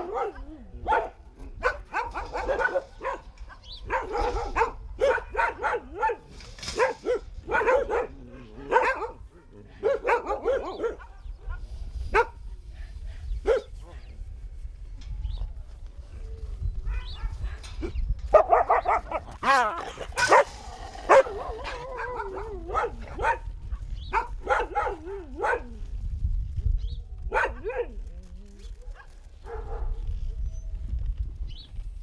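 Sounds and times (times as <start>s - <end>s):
dogs barking and yelping: 0.0s - 13.9s, 17.0s - 25.8s, 27.2s - 28.0s.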